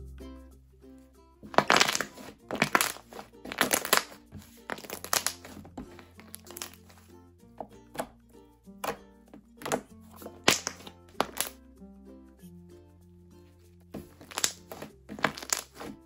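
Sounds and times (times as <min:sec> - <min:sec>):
light background music: 0:00.0 - 0:16.0
slime squishing and popping: 0:01.5 - 0:06.9, 0:09.6 - 0:11.6, 0:14.0 - 0:16.0.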